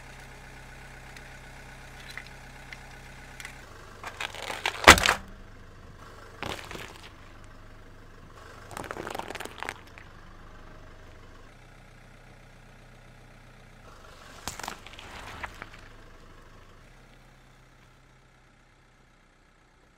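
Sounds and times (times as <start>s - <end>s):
car engine idling: 0.0s - 19.9s
tyre crushing objects crunching: 1.9s - 5.4s, 6.3s - 7.6s, 8.6s - 10.1s, 14.2s - 16.0s.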